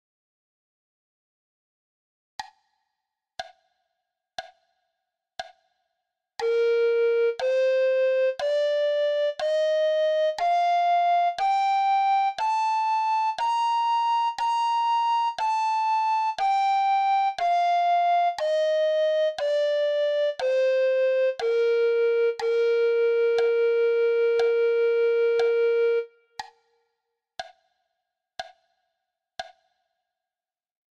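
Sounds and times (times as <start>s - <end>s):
recorder playing a scale: 6.4s - 26.1s
metronome clicks: 6.4s - 26.6s, 27.4s - 27.6s, 28.4s - 28.6s, 29.4s - 29.6s.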